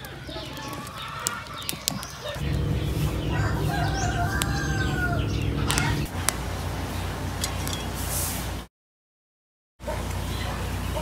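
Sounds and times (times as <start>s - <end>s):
wood fire crackling: 0.0s - 8.4s
rooster crowing: 2.4s - 6.1s
low rumble: 2.4s - 6.3s.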